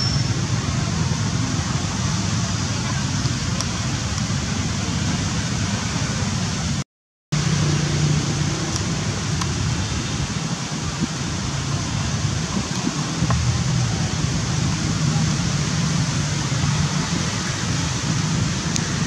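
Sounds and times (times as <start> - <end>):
outdoor background noise: 0.0 - 6.8, 7.4 - 19.0
low hum: 12.7 - 19.0.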